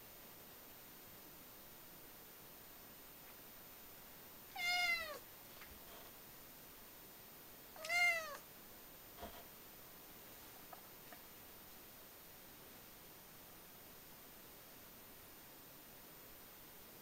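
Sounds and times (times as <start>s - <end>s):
cat meowing: 4.5s - 5.2s, 7.8s - 8.4s.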